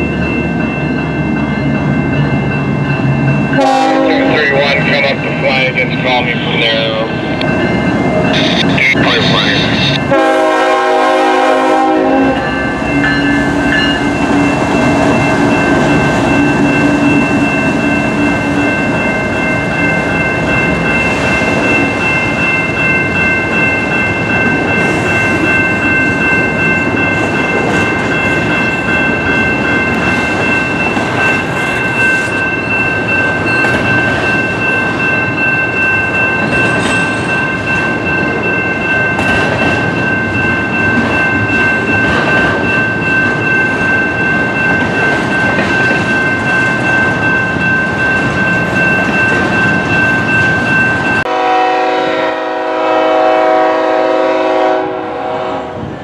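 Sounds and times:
train wheels rumbling on rail: 0:00.0 - 0:56.0
locomotive horn: 0:03.6 - 0:07.0, 0:08.3 - 0:12.6, 0:51.3 - 0:55.9.

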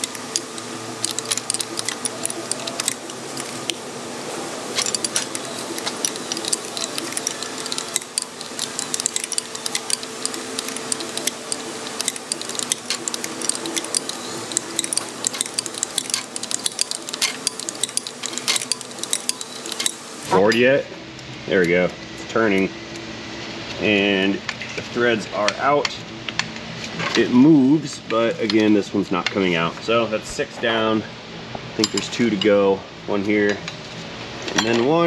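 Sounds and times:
hand ratchet clicking: 0:00.0 - 0:03.8, 0:04.8 - 0:20.3
steady background hum: 0:00.0 - 0:35.0.

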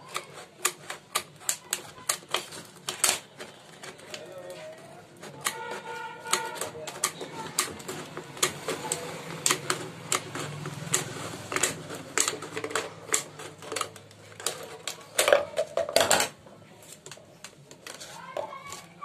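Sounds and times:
plastic bottle crackling: 0:00.0 - 0:19.0.

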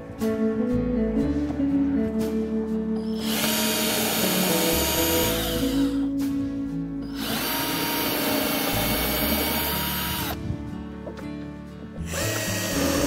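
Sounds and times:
cordless drill motor whine: 0:03.1 - 0:06.0, 0:07.0 - 0:10.4, 0:12.0 - 0:13.0.

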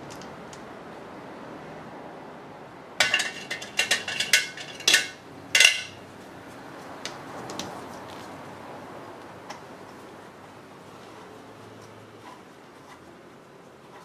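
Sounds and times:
metal tools clinking: 0:03.0 - 0:06.0.

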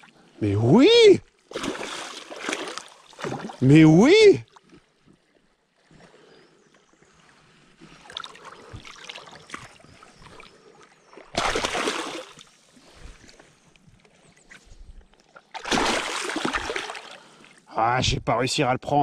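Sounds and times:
river water splashing and sloshing: 0:01.3 - 0:17.7
loud splash: 0:01.5 - 0:03.6, 0:11.3 - 0:12.4, 0:15.6 - 0:17.2.

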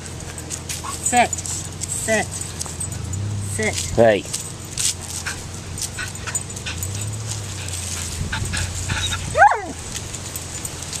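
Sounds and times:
paws on dirt and leaves: 0:00.0 - 0:11.0
dog yelping: 0:05.1 - 0:09.9.

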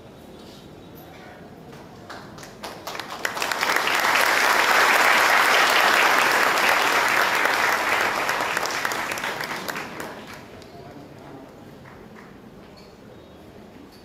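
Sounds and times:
crowd applauding: 0:02.1 - 0:10.7.

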